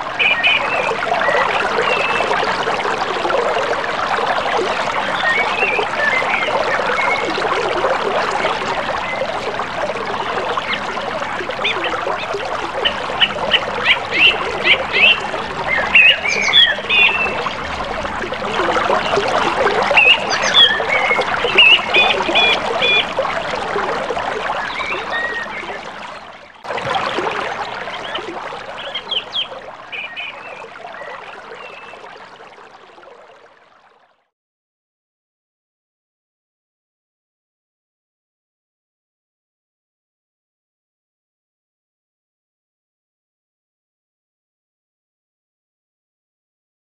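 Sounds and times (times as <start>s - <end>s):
rushing river water: 0.0s - 33.6s.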